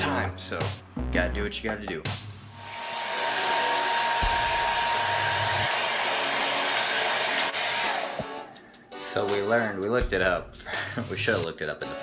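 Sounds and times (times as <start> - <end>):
hair dryer blowing: 2.5 - 8.6.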